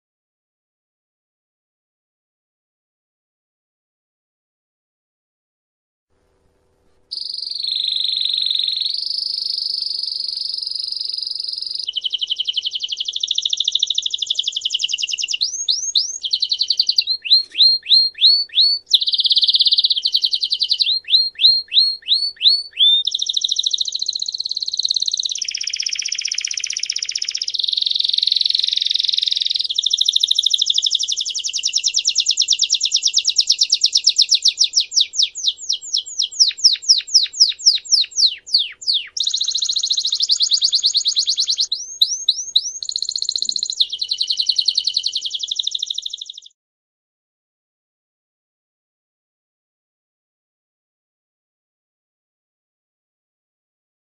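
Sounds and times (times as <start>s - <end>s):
canary singing trills: 7.1s - 46.6s.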